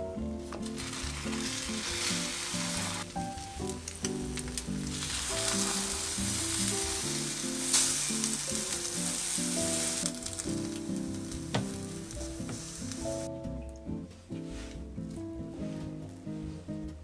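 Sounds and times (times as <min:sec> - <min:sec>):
sandwiches sizzling in frying pan: 0:00.6 - 0:13.3.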